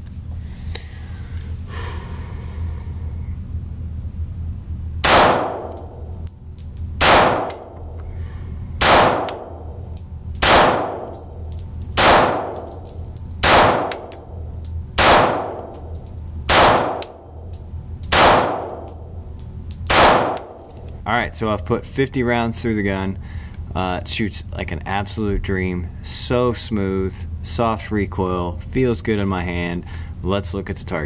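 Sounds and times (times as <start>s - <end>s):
steady low hum: 0.0s - 31.0s
pistol shots: 5.0s - 5.9s, 7.0s - 7.8s, 8.8s - 9.6s, 10.4s - 11.2s, 12.0s - 12.7s, 13.4s - 14.2s, 15.0s - 15.9s, 16.5s - 17.2s, 18.1s - 19.0s, 19.9s - 20.6s.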